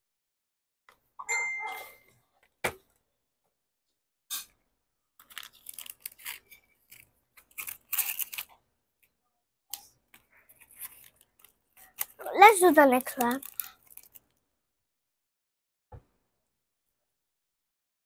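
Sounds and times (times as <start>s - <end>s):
plastic wrappers crinkling: 5.2s - 8.6s, 10.1s - 14.4s.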